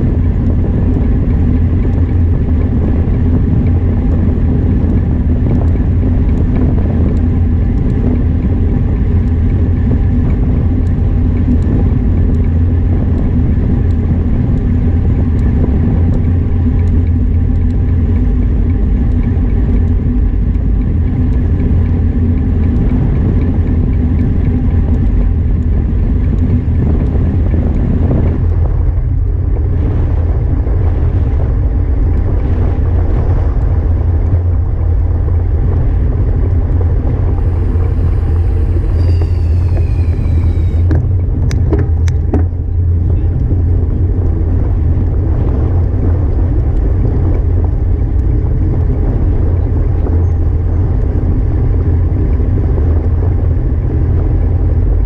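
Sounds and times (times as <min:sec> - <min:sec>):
wind buffeting microphone: 0:00.0 - 0:55.0
high falling tone: 0:37.4 - 0:41.2.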